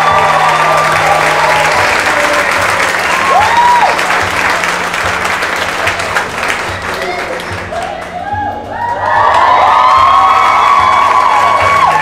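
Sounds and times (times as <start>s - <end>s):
person cheering: 0.0s - 4.1s, 7.0s - 12.0s
crowd clapping: 0.0s - 12.0s.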